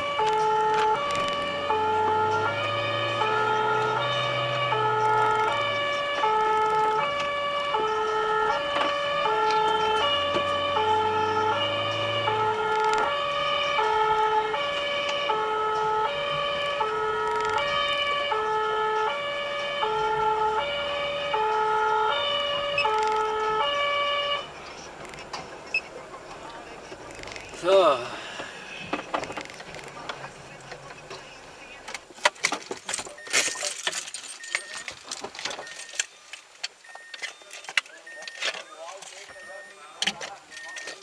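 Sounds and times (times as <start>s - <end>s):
two-tone emergency siren: 0.0s - 24.6s.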